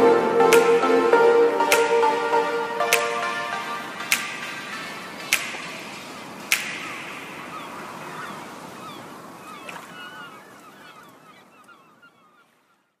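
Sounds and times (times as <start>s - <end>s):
gliding chirp-like notes: 0.0s - 5.2s
background music: 0.0s - 8.0s.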